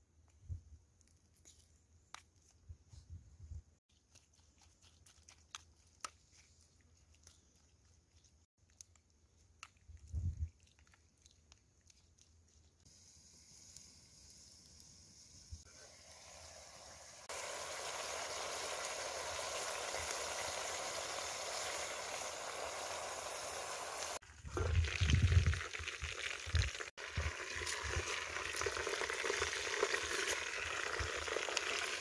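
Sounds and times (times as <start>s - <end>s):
faint steady hiss: 12.9s - 24.2s.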